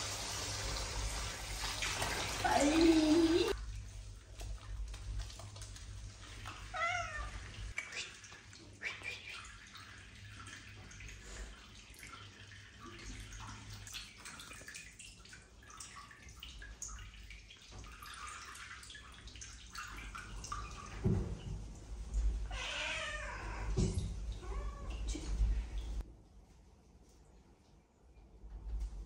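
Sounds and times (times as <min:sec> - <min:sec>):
cat meowing: 0:22.5 - 0:23.8.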